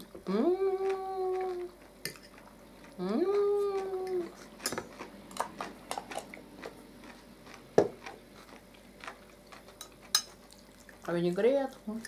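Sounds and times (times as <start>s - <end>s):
chewing and mouth noises: 0.6s - 12.0s.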